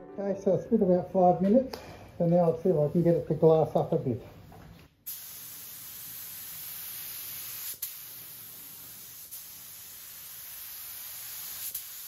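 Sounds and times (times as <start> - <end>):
spray gun hissing: 5.1 - 12.0.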